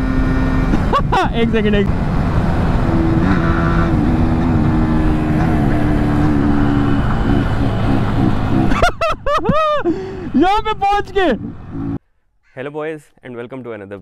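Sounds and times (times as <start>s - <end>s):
motorcycle engine running at speed: 0.0s - 1.0s, 1.8s - 8.8s, 11.3s - 12.0s.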